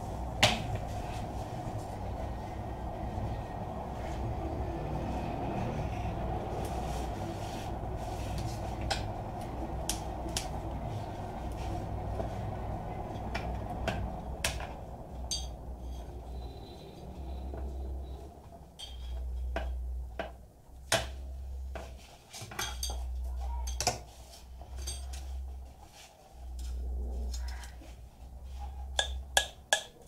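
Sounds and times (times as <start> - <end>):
low rumble: 0.0 - 20.1.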